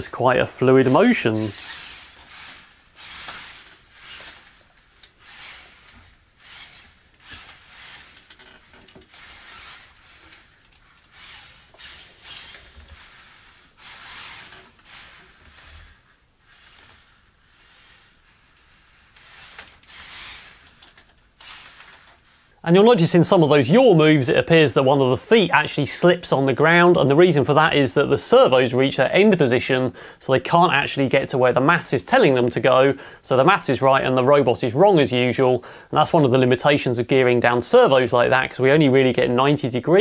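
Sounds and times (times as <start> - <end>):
servos whirring: 0.0 - 22.5.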